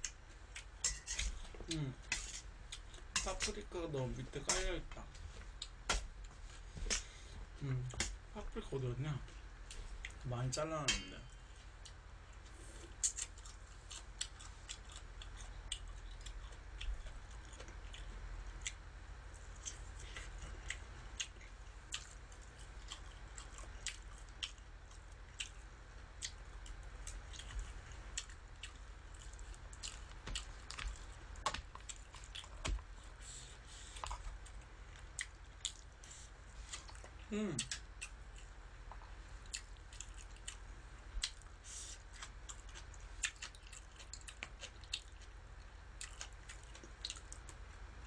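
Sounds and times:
chewing with wet smacks: 11.5 - 47.6.

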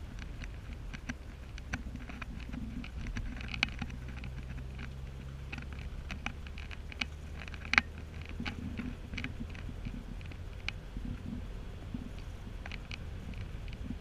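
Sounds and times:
car engine and road drone: 0.0 - 14.0.

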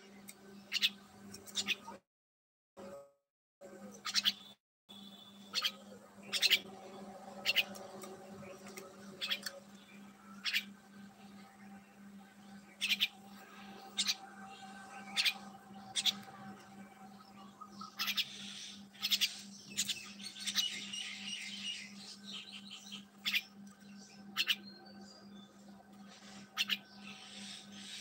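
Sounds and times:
small birds chirping: 0.0 - 2.0, 3.8 - 28.0
steady low hum: 5.0 - 28.0.

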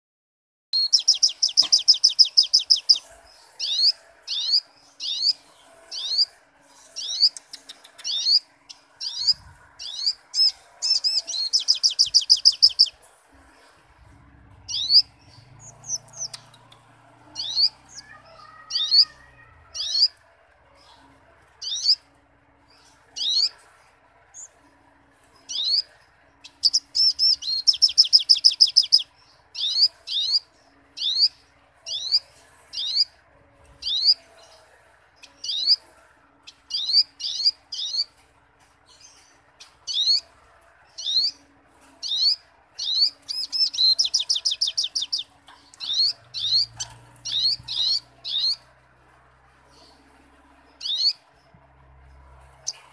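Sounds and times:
bird rapid trill: 0.8 - 13.0, 14.7 - 16.7, 26.5 - 33.2, 42.0 - 48.7
bird chirping: 0.8 - 20.2, 20.8 - 24.8, 25.4 - 38.2, 38.8 - 48.8, 49.4 - 52.9.

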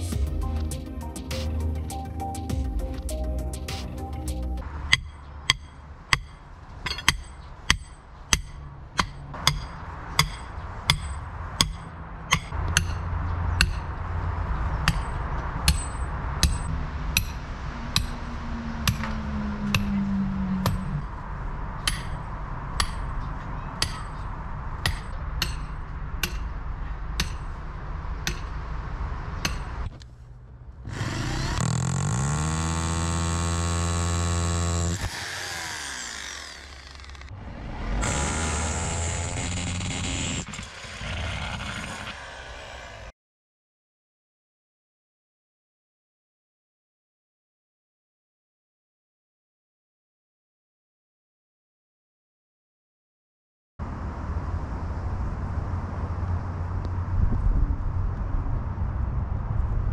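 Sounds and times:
hammer striking steel rod: 4.9 - 14.0, 14.8 - 18.2, 18.8 - 21.1, 21.8 - 23.2, 23.8 - 24.2, 24.8 - 26.6, 27.2 - 27.6, 28.2 - 28.6, 29.4 - 29.9
rotary hammer drill motor: 30.9 - 37.3, 38.0 - 43.1.

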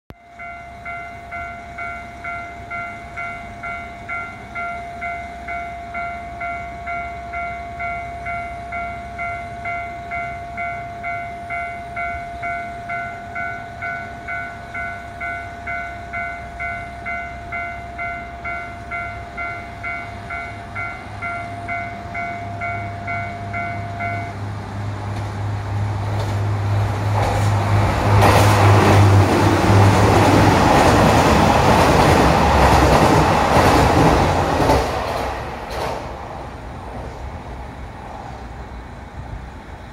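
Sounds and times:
diesel train passing: 0.1 - 39.9
wheels on rails: 25.0 - 37.1.

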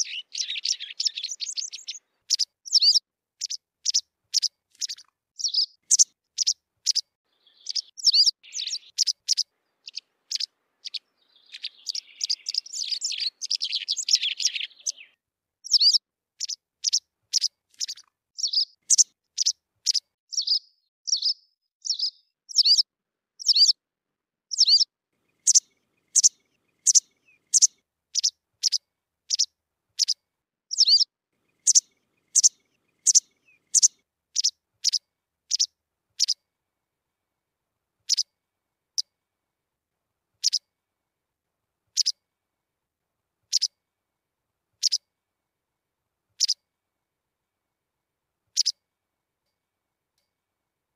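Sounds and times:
wagtail calling: 0.0 - 22.8, 24.5 - 36.4.

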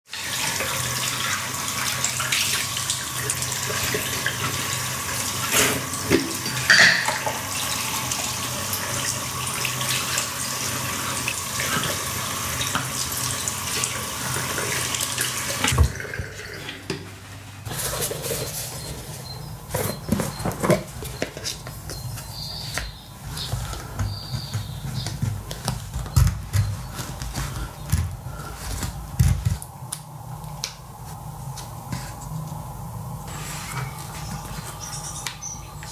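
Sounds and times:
tap water running into sink: 0.1 - 17.1
plastic containers rinsed under water: 0.1 - 31.0.

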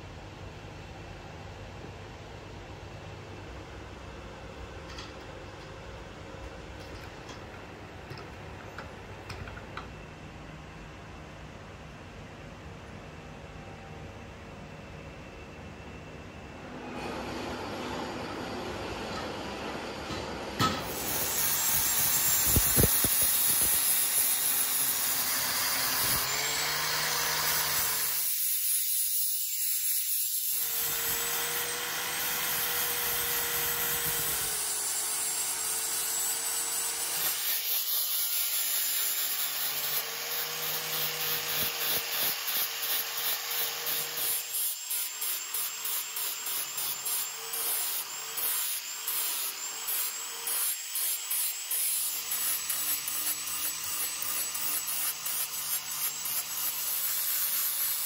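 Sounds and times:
power tool grinding: 16.8 - 58.0.

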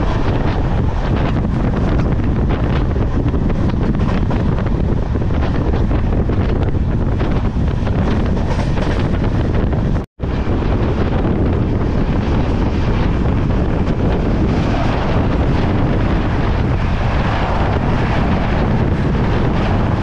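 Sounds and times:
moving train running noise: 0.0 - 20.0
wind buffeting microphone: 0.0 - 20.0.

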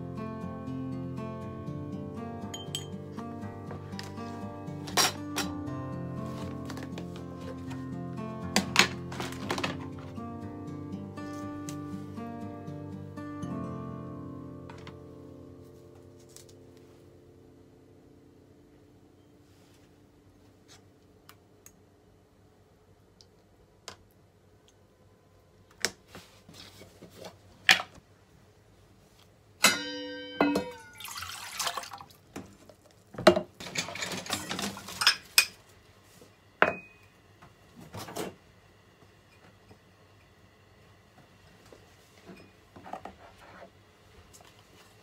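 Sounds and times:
ringing clink: 2.5 - 2.9
rustling or scraping: 6.2 - 7.9, 26.1 - 27.7.

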